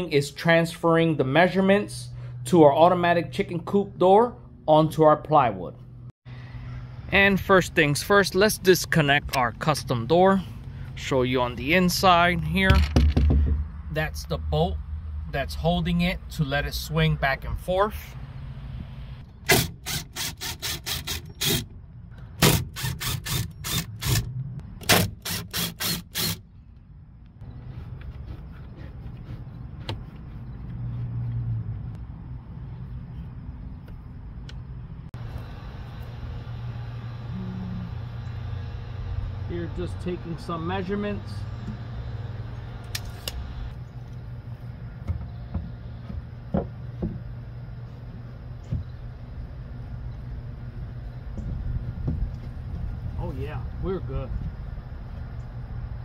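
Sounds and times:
knocks on wooden frame: 12.7 - 13.6, 45.1 - 47.2
steady low hum: 26.4 - 56.0.

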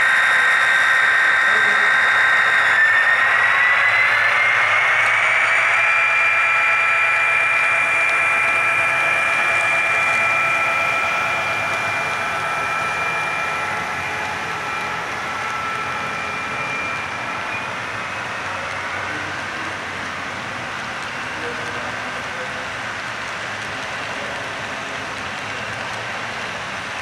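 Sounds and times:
model train motor whine: 0.0 - 26.6
wheels rolling on rails: 0.0 - 27.0.

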